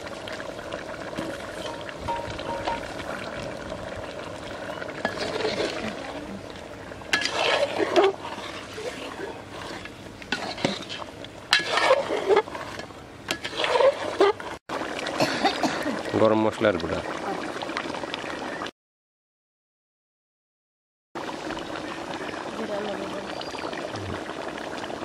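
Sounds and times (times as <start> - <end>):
metal spoon scraping a pot: 5.0 - 6.0, 7.1 - 14.6.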